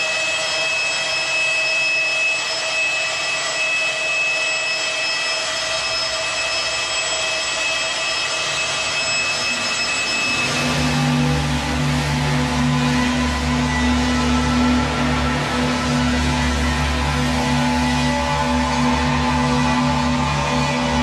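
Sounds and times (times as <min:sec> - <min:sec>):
dark ambient drone: 0:00.0 - 0:21.0
low rumble: 0:10.2 - 0:21.0.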